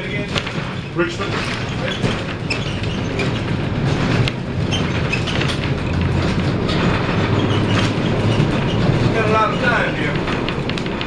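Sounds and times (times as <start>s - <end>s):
streetcar wheels rumbling: 0.0s - 11.0s.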